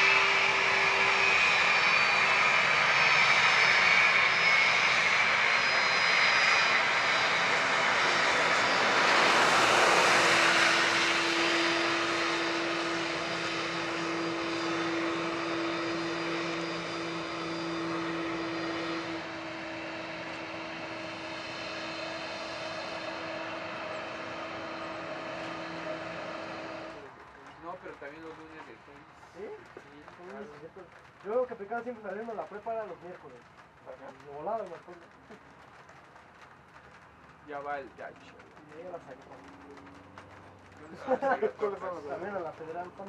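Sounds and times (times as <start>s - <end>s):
jet engines whining: 0.0s - 29.2s.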